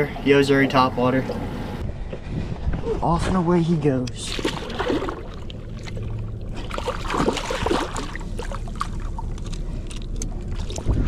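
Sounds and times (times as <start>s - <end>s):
steady low rumble: 0.1s - 11.0s
water sloshing and splashing: 4.1s - 11.0s.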